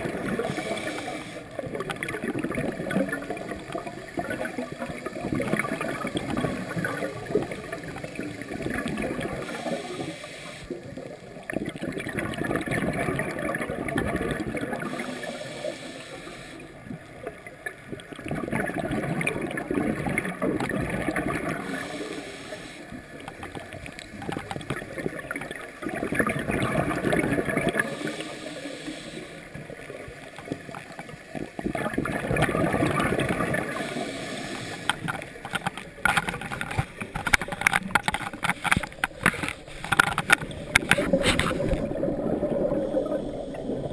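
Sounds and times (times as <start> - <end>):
exhaled bubbles gurgling underwater: 0.0 - 43.9
regulator breathing hiss: 0.4 - 1.5, 9.3 - 10.9, 14.8 - 16.8, 21.6 - 23.2, 27.8 - 29.6, 33.6 - 35.1.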